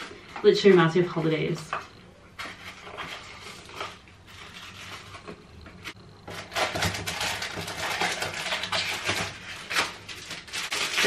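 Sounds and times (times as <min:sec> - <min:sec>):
cardboard packaging rustling: 0:02.3 - 0:11.0.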